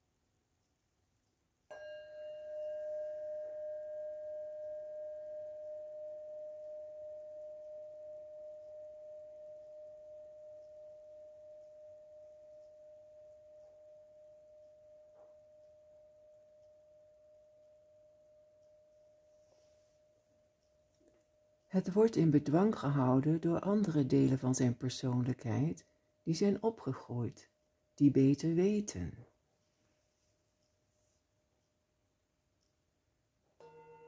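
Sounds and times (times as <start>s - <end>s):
singing bowl ringing: 1.7s - 23.0s, 33.6s - 34.0s.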